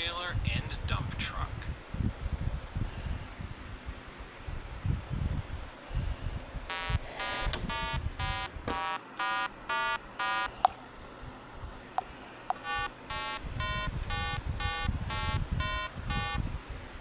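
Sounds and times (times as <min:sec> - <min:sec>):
chiptune electronic beeps: 0:06.7 - 0:10.5, 0:12.6 - 0:16.4.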